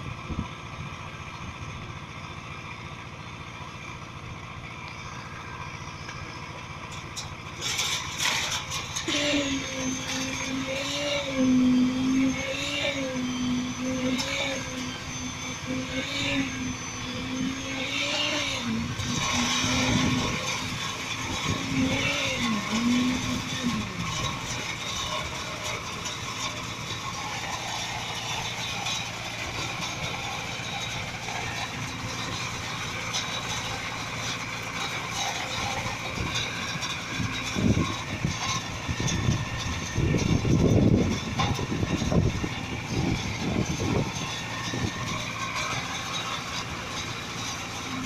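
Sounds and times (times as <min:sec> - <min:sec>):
concrete pump engine drone: 0:00.0 - 0:48.0
low thumps and rumbles: 0:35.6 - 0:45.4.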